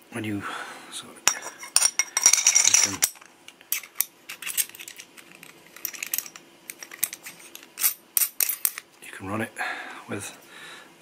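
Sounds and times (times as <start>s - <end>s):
metal parts clicking and tapping: 1.3s - 8.8s.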